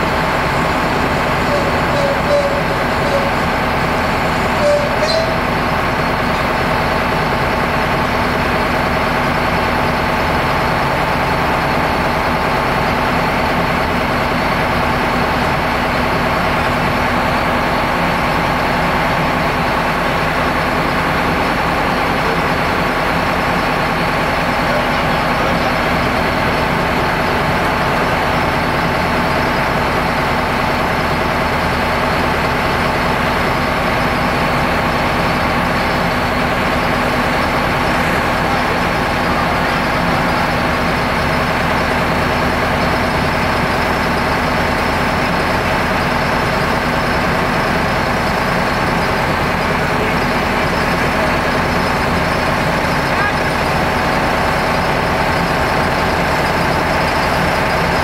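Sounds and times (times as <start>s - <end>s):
diesel locomotive engine idling: 0.0s - 58.0s
brief squeak: 1.5s - 3.3s, 4.6s - 5.5s.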